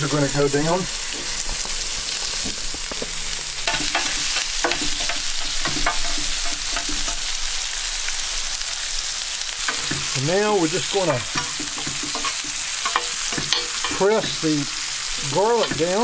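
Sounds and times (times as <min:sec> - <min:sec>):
vegetables sizzling in hot oil: 0:00.0 - 0:16.0
metal tongs clinking on steel: 0:10.8 - 0:16.0.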